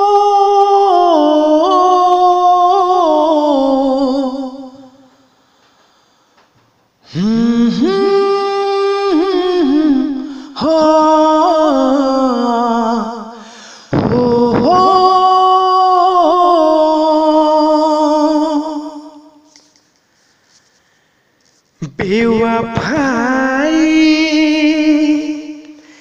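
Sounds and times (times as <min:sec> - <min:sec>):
person singing sustained notes: 0:00.0 - 0:05.1, 0:07.0 - 0:19.5.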